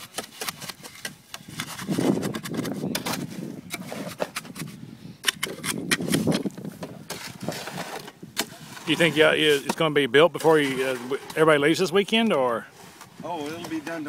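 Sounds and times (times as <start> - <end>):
metal blades scraping wet concrete: 7.1 - 14.0.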